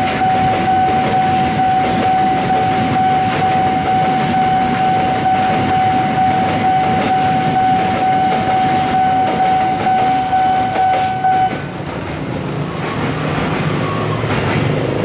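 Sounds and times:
level crossing warning alarm: 0.0s - 11.7s
motorcycle engines: 0.1s - 15.0s.

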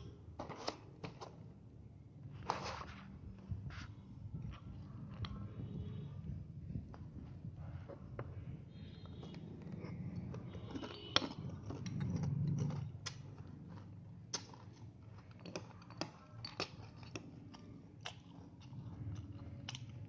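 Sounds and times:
chewing crunchy cereal: 8.8s - 20.0s.

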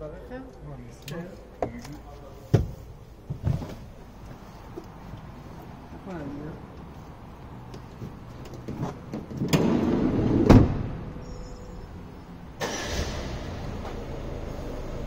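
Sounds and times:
sliding door rolling: 9.4s - 11.0s
sliding door slamming: 9.4s - 11.1s.

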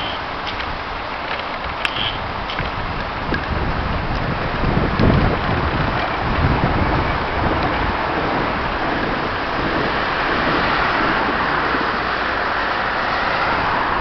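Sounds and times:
diesel engine running: 0.0s - 14.0s
wind noise on microphone: 0.0s - 14.0s
car passing: 3.6s - 14.0s.

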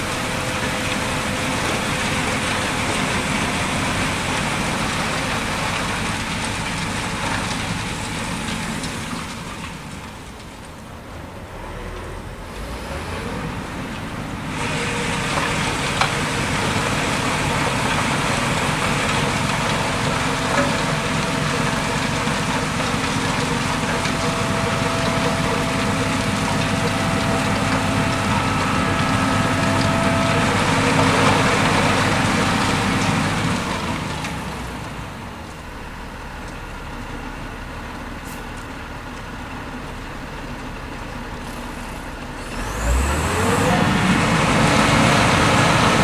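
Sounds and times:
snowplow blower rushing: 0.0s - 46.0s
snowplow engine running: 0.0s - 46.0s
faint whine: 23.7s - 33.8s.

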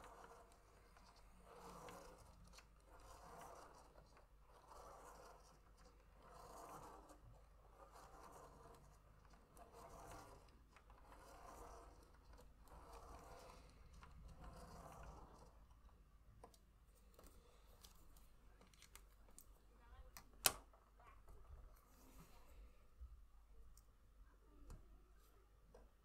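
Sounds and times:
pen scratching on paper: 0.0s - 15.6s.

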